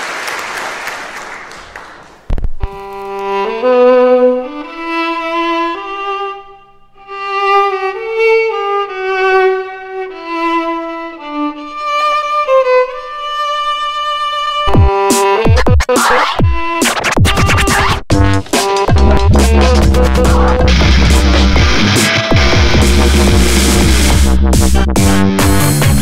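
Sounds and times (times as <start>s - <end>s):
solo violin melody: 2.6s - 15.6s.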